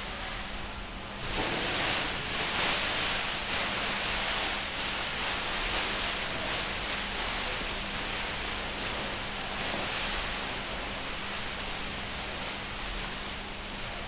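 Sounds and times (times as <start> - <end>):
plastic sheet rustling in draught: 0.0 - 14.0.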